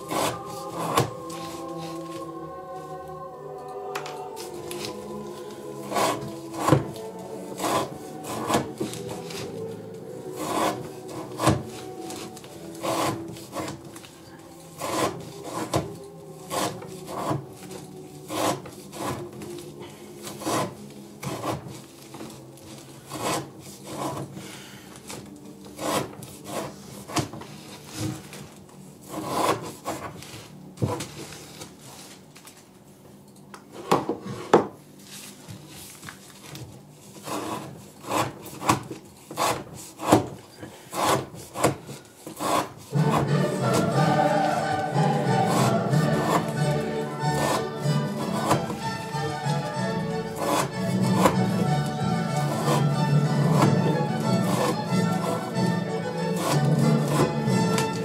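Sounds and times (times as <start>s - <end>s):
knife cutting rope on wooden board: 4.7s - 9.6s, 10.3s - 14.0s, 14.8s - 19.5s, 25.7s - 27.4s, 29.0s - 30.1s, 37.2s - 43.9s, 45.4s - 51.6s, 52.3s - 55.5s, 56.3s - 58.0s.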